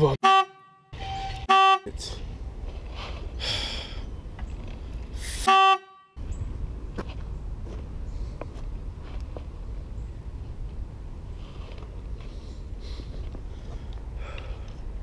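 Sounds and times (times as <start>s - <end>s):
outdoor background noise: 0.0s - 15.0s
horn toot censor bleep: 0.2s - 2.0s, 5.4s - 6.2s.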